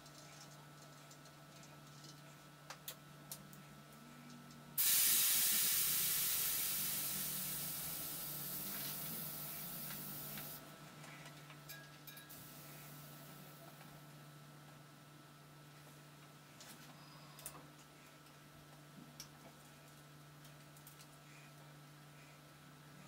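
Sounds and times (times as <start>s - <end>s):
air hissing from tyre valve: 4.8s - 10.6s
valve clicks: 4.8s - 10.6s.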